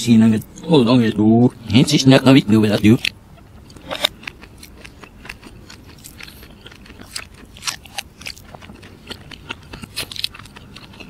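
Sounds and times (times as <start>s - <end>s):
person chewing: 2.6s - 11.0s.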